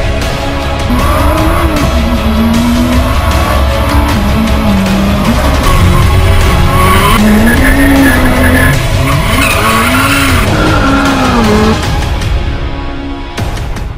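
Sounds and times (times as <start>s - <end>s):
car engine revving: 0.6s - 12.5s
tyres squealing: 0.9s - 11.8s.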